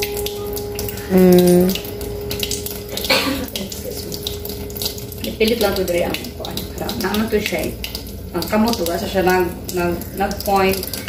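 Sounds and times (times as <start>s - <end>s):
machine hum: 0.0s - 7.0s
water running into steel sink: 0.0s - 11.0s.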